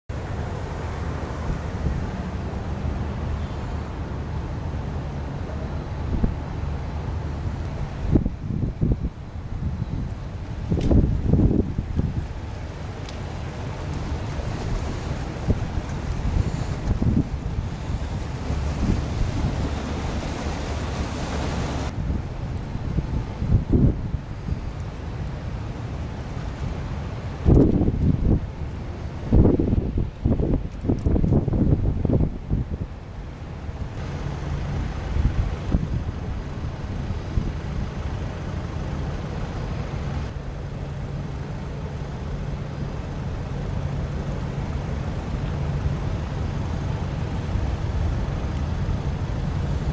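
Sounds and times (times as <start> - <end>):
ship diesel engines droning: 0.1 - 29.6, 32.8 - 49.9
wind buffeting microphone: 5.6 - 38.6.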